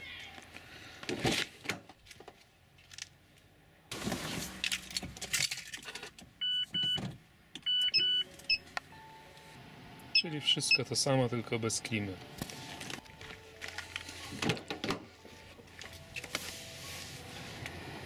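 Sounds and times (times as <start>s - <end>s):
car warning chime beeps: 6.4s - 7.0s, 7.6s - 11.2s.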